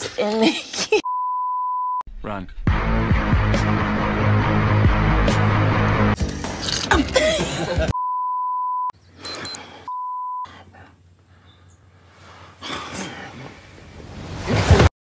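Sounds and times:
electronic bleeps: 8.0s - 10.4s.

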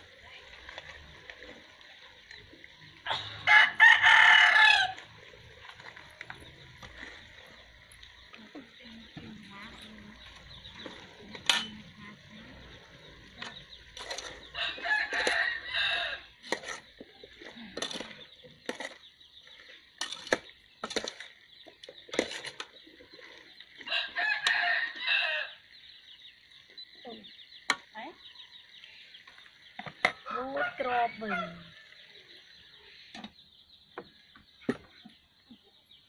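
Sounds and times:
rooster crowing: 3.4s - 5.0s, 14.5s - 16.3s, 23.9s - 25.6s, 30.3s - 32.0s
metal ladle clinking on pot: 11.3s - 12.0s.

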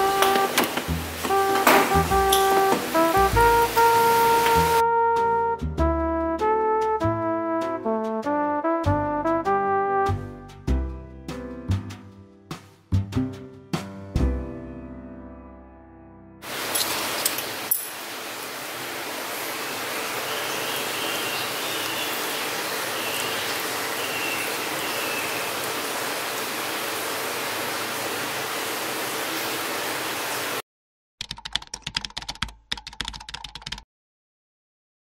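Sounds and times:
food sizzling: 0.0s - 4.8s, 16.4s - 30.6s
rapid clicks: 31.2s - 33.8s.

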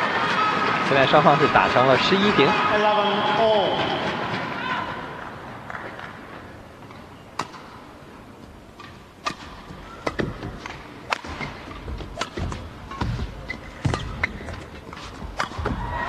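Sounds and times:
racket striking shuttlecock: 8.8s - 14.4s.

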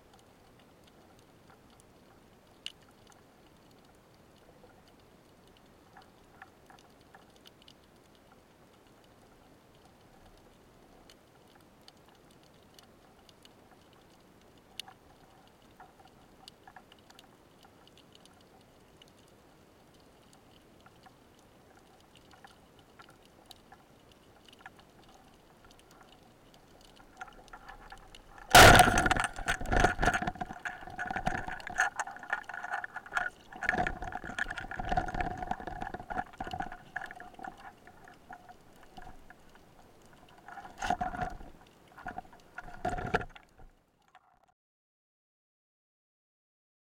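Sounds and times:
knocks and rattles underwater: 25.8s - 44.3s
speargun firing crack: 28.5s - 30.1s.

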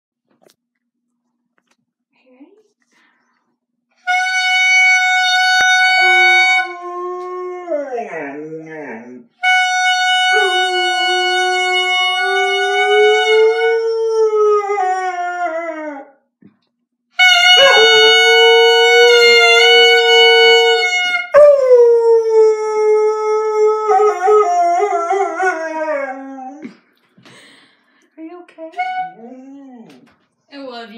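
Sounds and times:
dog howling: 6.0s - 9.2s, 17.6s - 26.7s.

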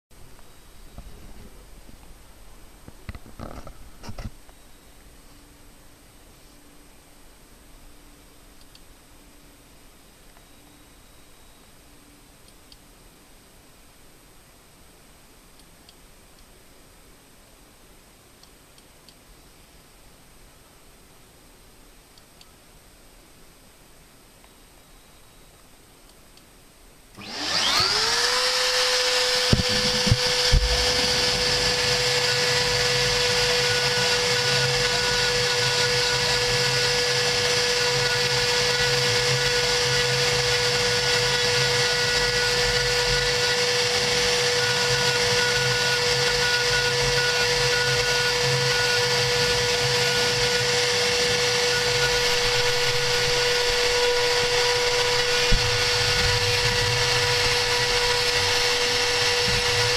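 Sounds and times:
router spindle high whine: 27.2s - 59.9s.

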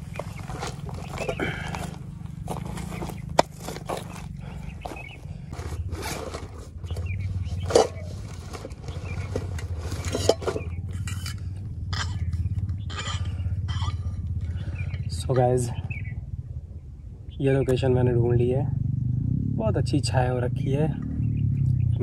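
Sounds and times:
backpack rustling and clunking: 0.0s - 11.2s
low rumble: 0.0s - 22.0s.

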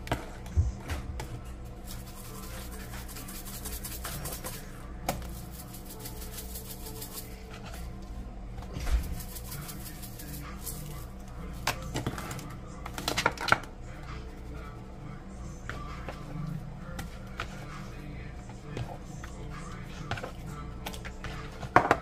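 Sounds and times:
plastic spice shaker shaking: 1.8s - 7.8s, 8.9s - 13.6s.

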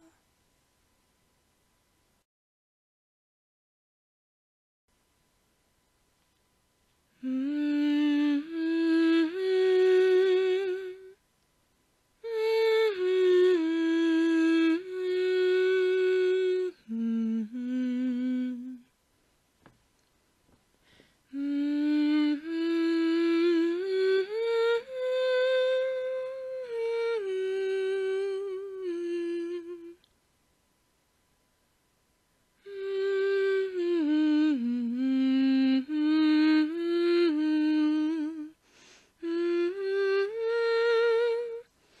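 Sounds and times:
woman humming: 0.0s - 0.2s, 7.2s - 11.2s, 12.2s - 18.9s, 21.3s - 30.1s, 32.6s - 38.6s, 39.2s - 41.7s.

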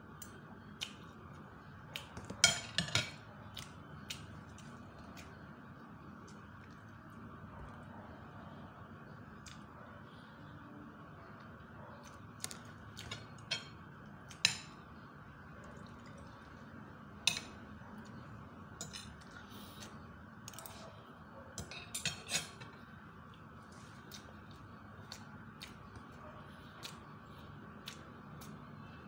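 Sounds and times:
cutlery clinking and scraping on plate: 2.2s - 3.2s, 21.6s - 22.8s.

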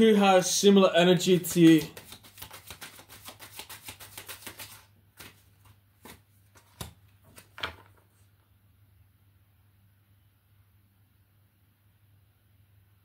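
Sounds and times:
cards being shuffled: 1.2s - 8.3s.

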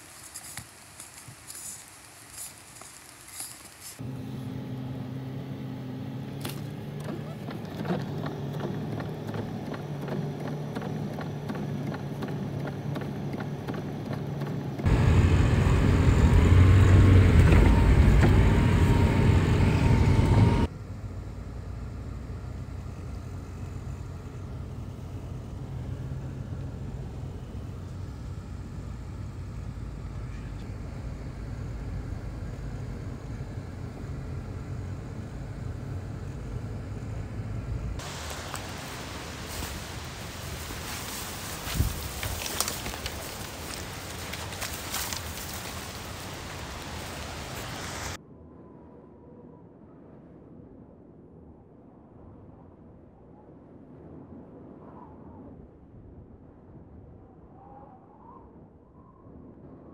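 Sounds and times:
car engine and road noise: 0.0s - 48.2s
rough rumble: 6.2s - 48.2s.

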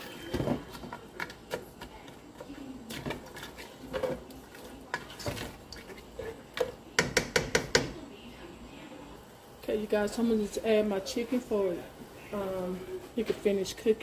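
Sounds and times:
spatula stirring vegetables: 0.0s - 8.0s.

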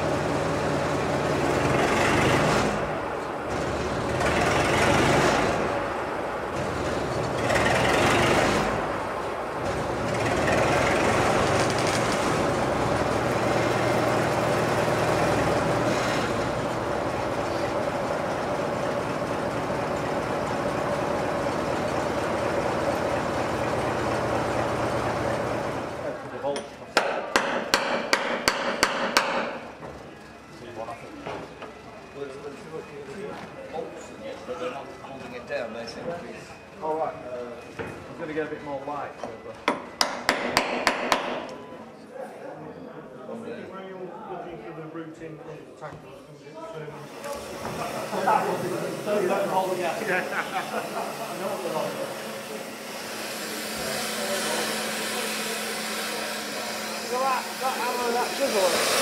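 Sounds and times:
engine running: 0.0s - 26.3s, 47.2s - 59.0s
locomotive running noise: 0.0s - 26.4s, 47.0s - 59.0s.

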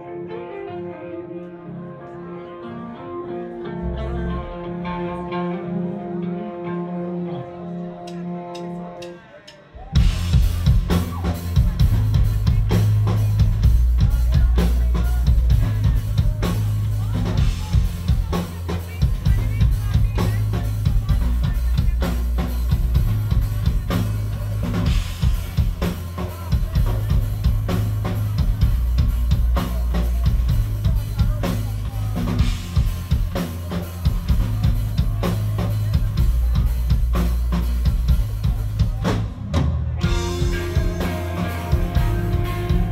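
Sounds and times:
live rock band playing: 0.0s - 42.9s
drums: 3.2s - 42.9s
heavy bass: 9.8s - 42.9s.

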